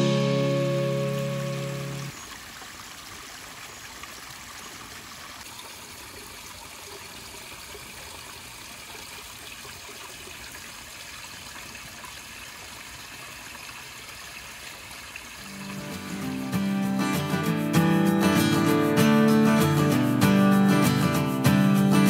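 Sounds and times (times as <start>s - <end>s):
creek splashing over rocks: 0.8s - 17.7s.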